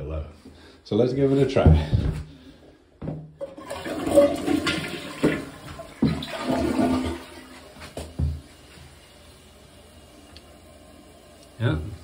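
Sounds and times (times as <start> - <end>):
toilet flushing: 3.4 - 12.0.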